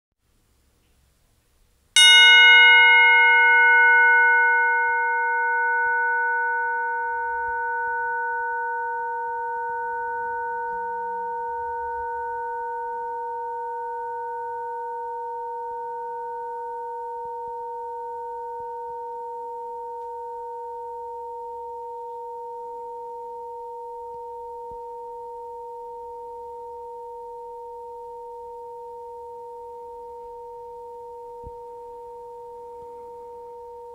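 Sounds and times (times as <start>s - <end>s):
tubular bell ringing: 2.0s - 33.9s.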